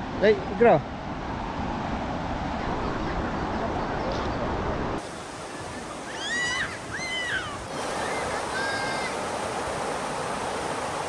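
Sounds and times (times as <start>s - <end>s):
river water flowing: 0.0s - 11.0s
short high calls: 6.0s - 9.2s.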